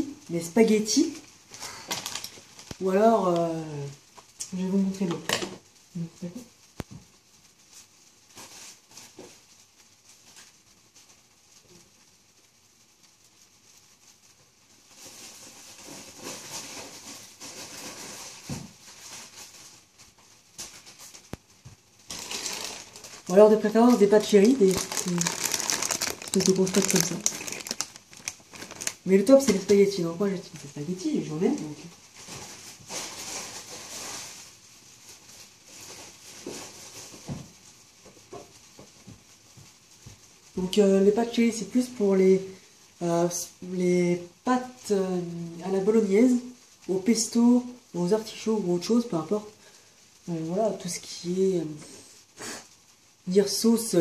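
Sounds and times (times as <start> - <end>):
plastic bag rustling: 0.0 - 5.8, 6.4 - 12.2, 12.8 - 43.6.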